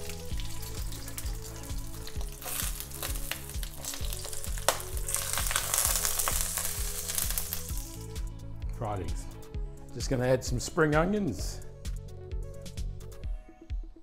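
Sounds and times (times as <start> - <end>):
eggs sizzling in hot oil: 0.0 - 8.2
background music with steady beat: 0.0 - 14.0.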